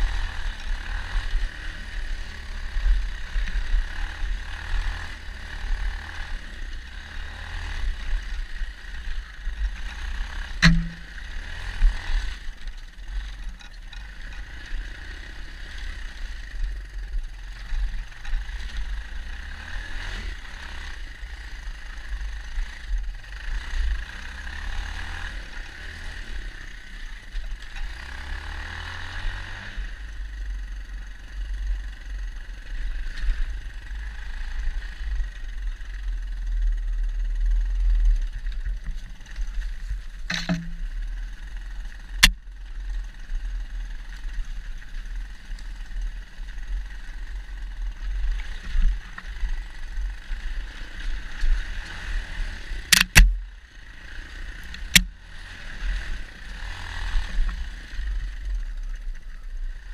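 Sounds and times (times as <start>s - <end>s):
dirt bike engine drone: 0.0s - 59.9s
sharp knocks: 10.6s - 11.2s, 40.3s - 40.8s.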